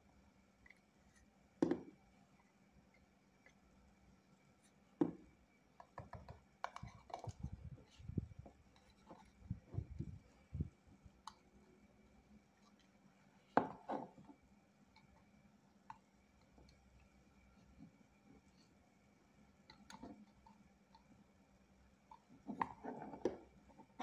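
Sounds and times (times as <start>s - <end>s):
plastic part knocking and tapping: 1.6s - 1.9s, 5.0s - 7.5s.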